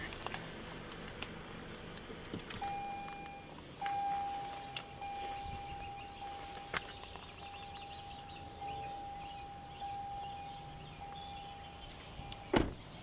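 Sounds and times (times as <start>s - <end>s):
car warning beep: 2.6s - 13.0s.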